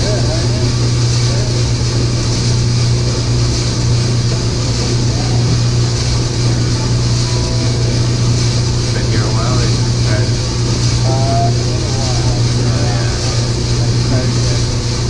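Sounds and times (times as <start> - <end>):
coffee roaster motor hum: 0.0 - 15.0
even hiss: 0.0 - 15.0.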